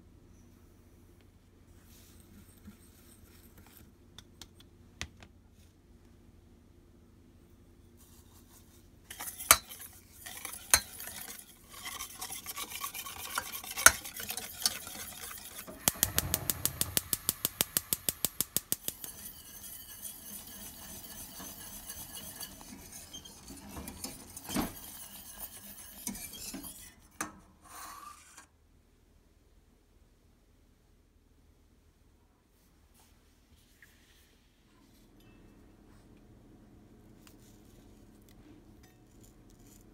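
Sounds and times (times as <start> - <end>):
whisk scraping and clinking in pan: 8.0 - 27.3.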